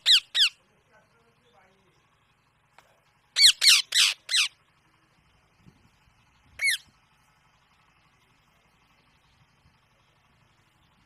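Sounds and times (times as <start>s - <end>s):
parakeet squawking: 0.0s - 0.6s, 3.4s - 4.6s, 6.6s - 6.8s.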